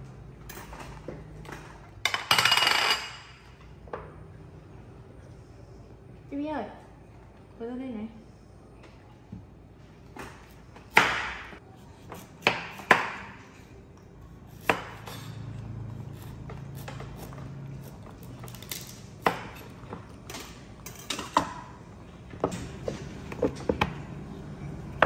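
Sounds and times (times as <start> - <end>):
knife chopping on wooden board: 10.2 - 13.4.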